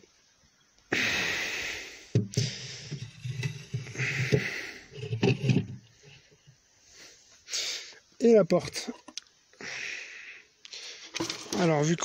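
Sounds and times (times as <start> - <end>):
dull wooden knocks: 2.1 - 5.9
wood scraping on wood: 2.2 - 6.5.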